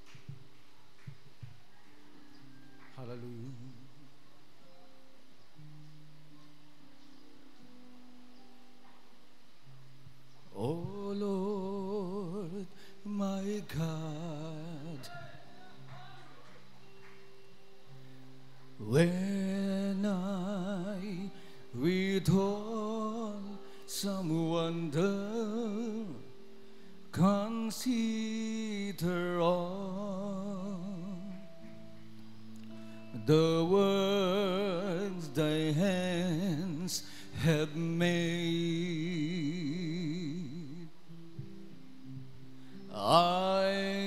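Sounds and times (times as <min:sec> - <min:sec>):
person singing with vibrato: 0:10.5 - 0:16.8, 0:18.8 - 0:31.8, 0:32.6 - 0:41.3.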